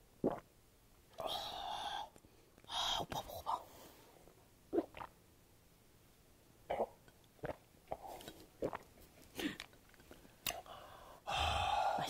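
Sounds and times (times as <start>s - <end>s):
person gulping a drink: 0.2s - 0.5s, 4.7s - 5.2s, 6.7s - 9.8s.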